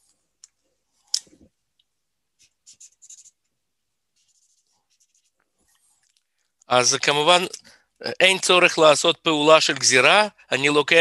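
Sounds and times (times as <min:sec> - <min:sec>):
pen writing on paper: 0:02.4 - 0:03.4.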